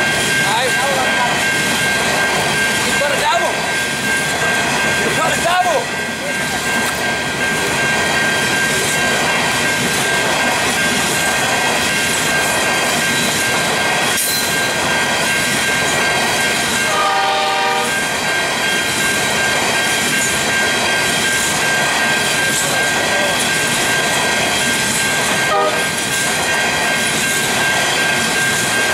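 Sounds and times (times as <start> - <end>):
high ringing crossing bell: 0.0 - 28.9
train wheels rumbling on rails: 0.0 - 28.9
train horn blast: 16.9 - 18.0, 25.5 - 25.9.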